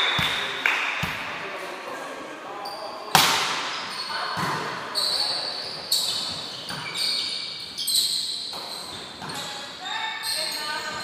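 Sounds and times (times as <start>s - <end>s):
volleyball hit slapping: 0.0s - 1.3s, 3.1s - 3.8s
shoe squeaks: 2.6s - 11.0s.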